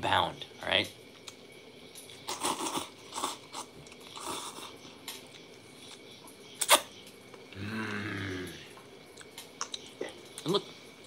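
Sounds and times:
person slurping and chewing noodles: 2.0s - 6.0s
person humming mm: 7.5s - 8.7s.

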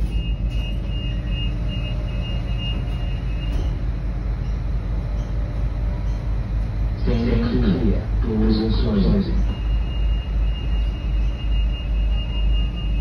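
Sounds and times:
train rumbling from inside carriage: 0.0s - 13.0s
high-pitched wavering tone: 9.2s - 13.0s.

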